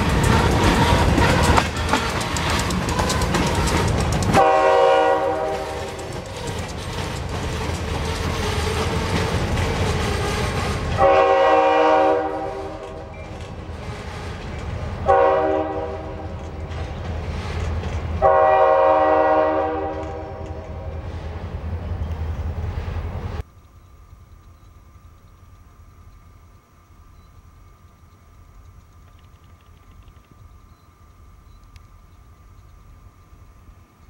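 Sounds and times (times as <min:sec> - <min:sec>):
locomotive horn: 0:00.0 - 0:06.3, 0:08.3 - 0:13.1, 0:13.7 - 0:16.4, 0:18.2 - 0:20.6
freight cars rolling on rails: 0:00.0 - 0:26.4.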